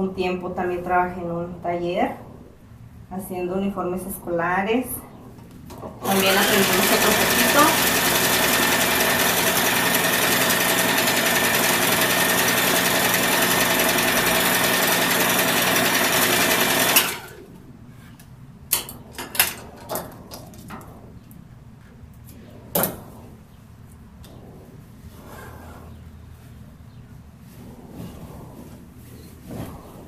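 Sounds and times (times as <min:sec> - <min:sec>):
sewing machine stitching: 0:06.0 - 0:17.4.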